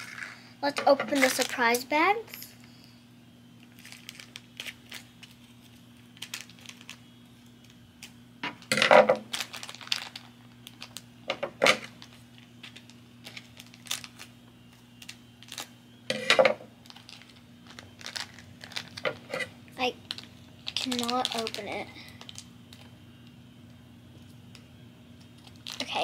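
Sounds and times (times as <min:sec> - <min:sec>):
foil packets crinkling: 0:01.1 - 0:01.8, 0:03.6 - 0:11.1, 0:11.7 - 0:15.8, 0:16.8 - 0:23.4, 0:24.5 - 0:26.0.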